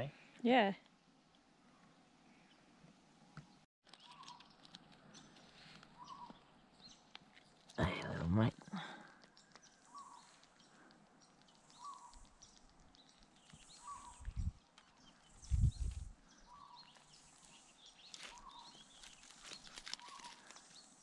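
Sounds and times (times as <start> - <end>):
bird calling: 3.9 - 7.1, 8.7 - 15.5, 16.3 - 21.0
net rustling and clicking: 18.1 - 20.8.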